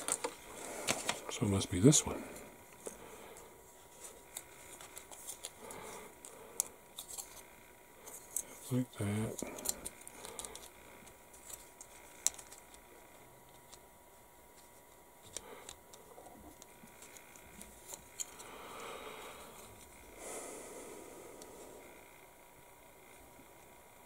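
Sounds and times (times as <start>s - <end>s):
plastic parts clicking and tapping: 0.0s - 1.2s, 9.5s - 12.8s.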